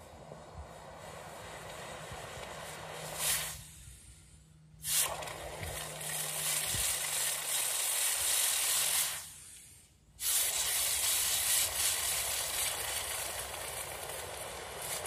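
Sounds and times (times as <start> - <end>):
furnace hissing: 0.4 - 4.1.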